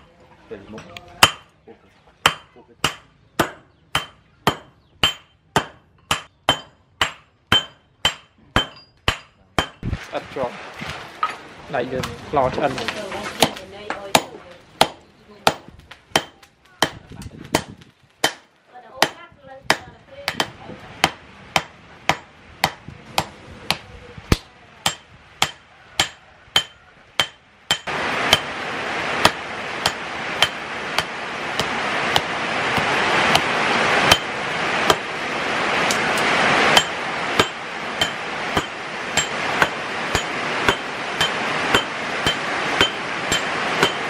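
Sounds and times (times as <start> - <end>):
hammer striking metal on anvil: 1.2 - 1.5, 2.2 - 9.8, 14.2 - 17.0, 17.6 - 23.3, 24.3 - 28.5, 29.2 - 33.5, 34.1 - 34.3, 36.7 - 44.0
steady rushing noise: 15.5 - 44.0.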